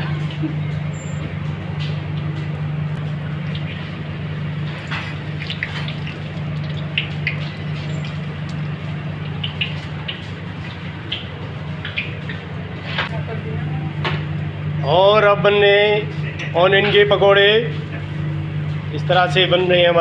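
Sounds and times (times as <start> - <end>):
low machine hum: 0.0 - 20.0
oil sizzling: 3.3 - 12.3.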